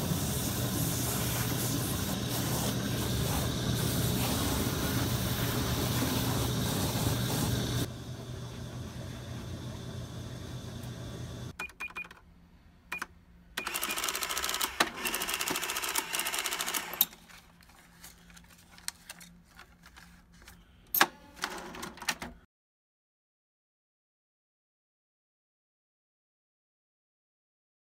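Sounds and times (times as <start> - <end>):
steady machine hum: 0.0 - 11.6
cash register printing receipt: 11.6 - 12.2, 12.9 - 17.3, 20.9 - 22.4
cash drawer clack: 20.9 - 22.4.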